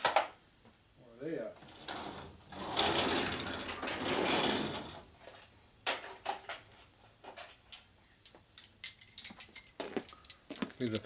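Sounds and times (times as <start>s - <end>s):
metal drawer sliding on runners: 1.6s - 5.1s
small tools clinking together: 7.3s - 11.0s.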